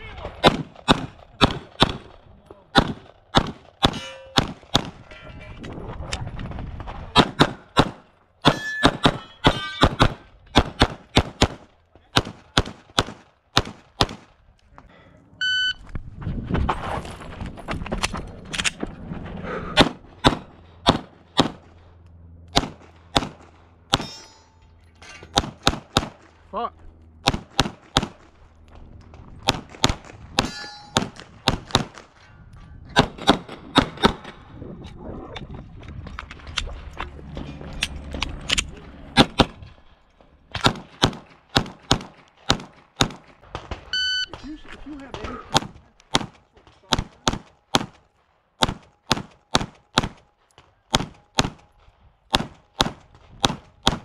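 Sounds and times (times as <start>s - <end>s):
pistol shots: 0.3s - 5.0s, 7.2s - 14.3s, 19.8s - 21.7s, 22.5s - 24.1s, 25.3s - 26.4s, 27.2s - 28.3s, 29.4s - 32.1s, 33.0s - 34.4s, 40.5s - 44.0s, 45.1s - 48.0s, 48.6s - 51.7s, 52.3s - 54.0s.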